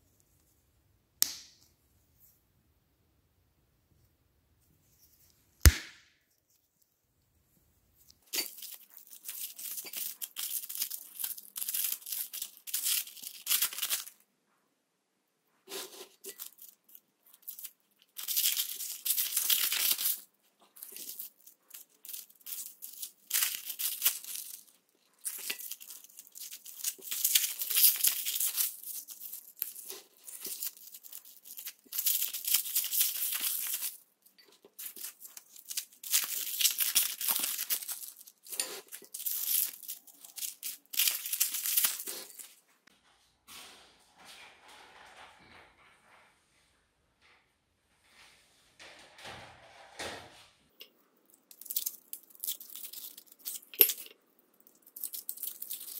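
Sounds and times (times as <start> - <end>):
foil wrappers crinkling and tearing: 8.2 - 14.2, 15.7 - 42.6, 51.4 - 55.9.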